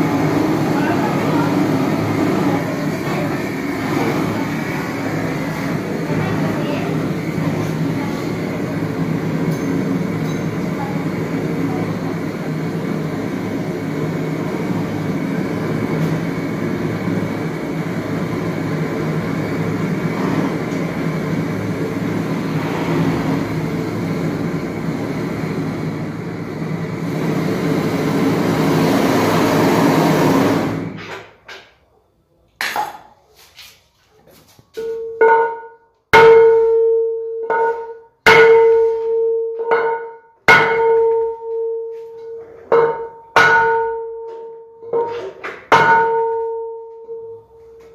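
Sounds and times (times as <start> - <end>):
wheel ringing metallic tone: 9.5 - 10.8, 34.8 - 44.9, 45.7 - 47.9
hammer striking metal rim: 34.8 - 47.4.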